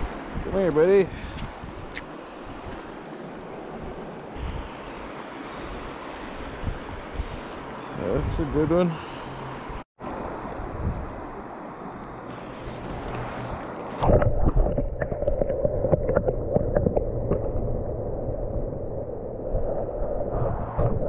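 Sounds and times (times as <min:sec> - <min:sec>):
muffled underwater rush: 0:14.0 - 0:21.0.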